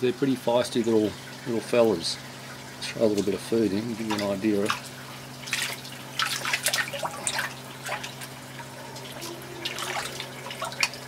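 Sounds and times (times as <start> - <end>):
steady low hum: 0.0 - 11.0
fish splashing at surface: 4.1 - 11.0.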